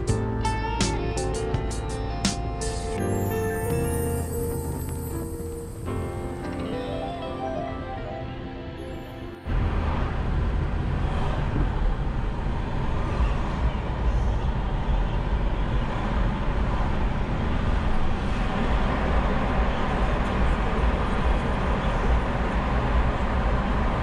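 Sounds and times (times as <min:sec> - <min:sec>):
car road noise: 0:00.0 - 0:24.0
low rumble: 0:03.3 - 0:24.0.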